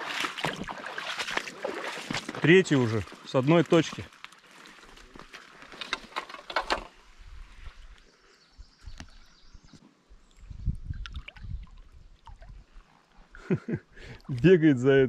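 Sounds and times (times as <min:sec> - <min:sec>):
river water gurgling: 0:00.0 - 0:04.7.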